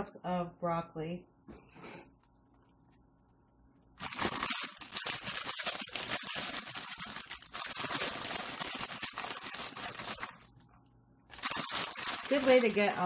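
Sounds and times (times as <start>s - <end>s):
plastic bag crinkling: 4.0s - 13.0s.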